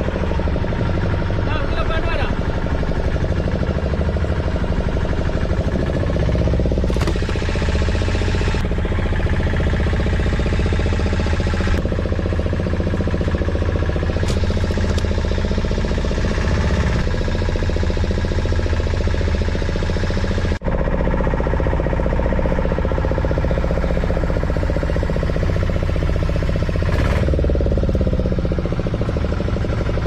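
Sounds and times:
boat engine droning: 0:00.0 - 0:30.0.

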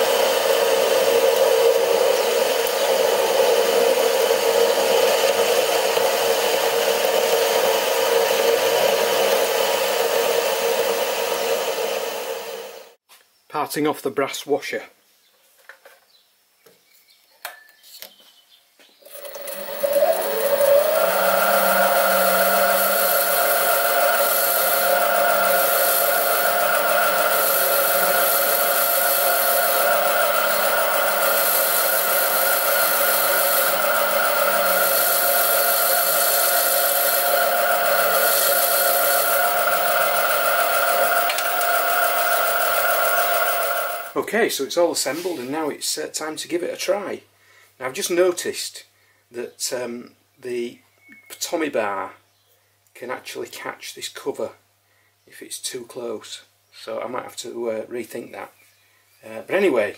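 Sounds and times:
lathe motor whine: 0:00.0 - 0:13.0, 0:19.1 - 0:44.2
tool cutting brass: 0:19.1 - 0:44.2.

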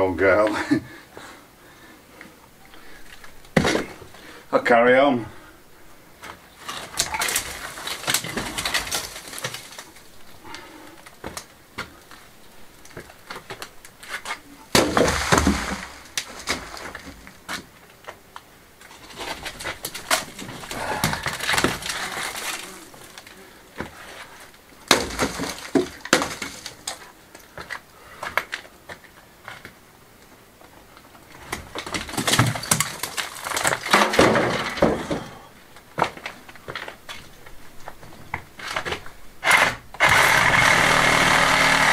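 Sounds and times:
stones clattering into metal wheelbarrow: 0:06.6 - 0:10.1, 0:13.0 - 0:17.4, 0:18.9 - 0:23.9, 0:24.8 - 0:27.1, 0:31.6 - 0:35.4.

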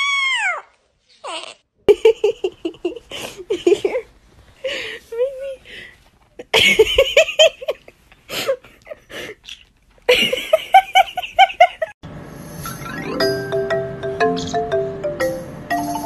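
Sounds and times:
mallet percussion tune: 0:12.9 - 0:16.0.

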